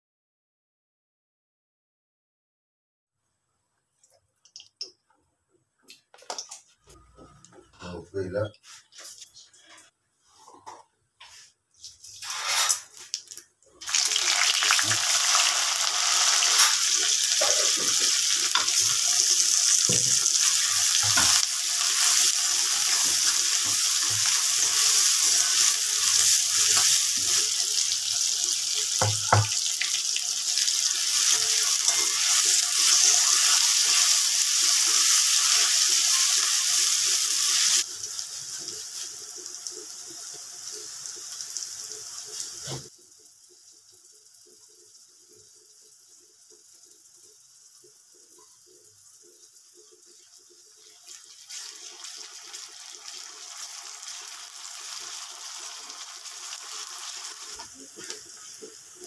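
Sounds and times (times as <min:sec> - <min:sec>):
onions sizzling in hot oil: 0:13.8 - 0:42.9, 0:50.2 - 0:59.0
knocks on pan: 0:29.0 - 0:29.6.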